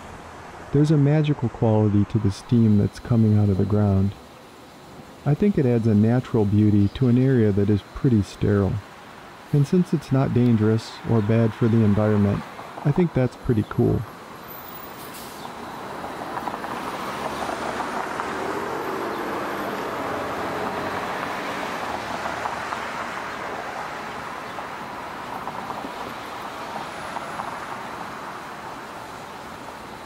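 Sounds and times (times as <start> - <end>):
steam hissing from manhole: 14.2 - 22.0.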